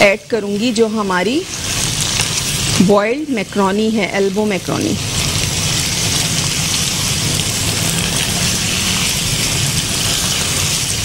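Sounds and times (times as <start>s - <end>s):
minced meat sizzling in a pan: 0.0s - 11.0s
spatula stirring: 5.0s - 11.0s.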